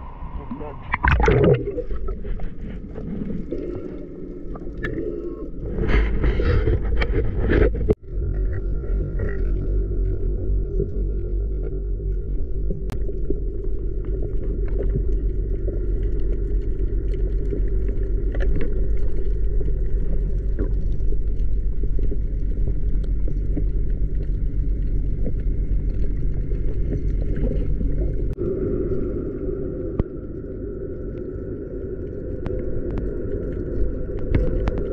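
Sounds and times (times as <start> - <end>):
muffled underwater rumble: 0.0 - 34.9.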